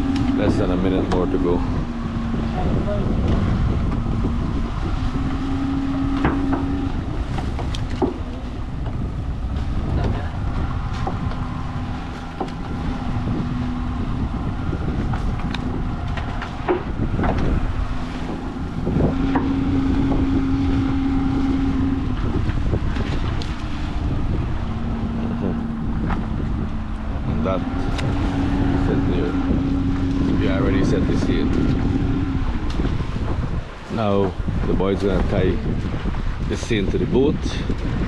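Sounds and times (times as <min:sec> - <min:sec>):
boat engine humming: 0:00.0 - 0:38.0
water washing past hull: 0:00.0 - 0:38.0
wind on microphone: 0:00.0 - 0:38.0.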